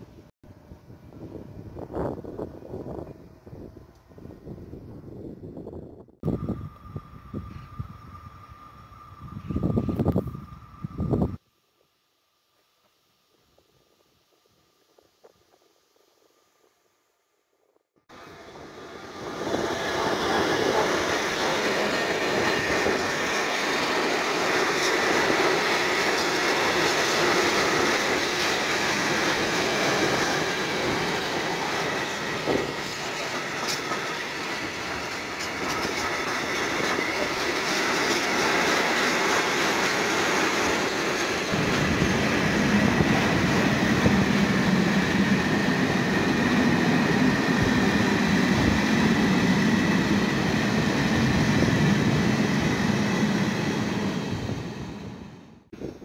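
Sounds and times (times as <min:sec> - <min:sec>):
train wheels rushing on rails: 0:06.2 - 0:11.4, 0:18.1 - 0:56.0.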